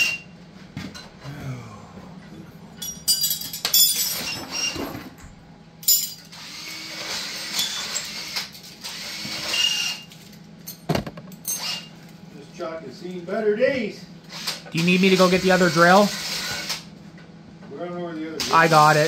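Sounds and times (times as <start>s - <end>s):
metal parts clinking: 2.8s - 4.6s, 5.8s - 6.4s.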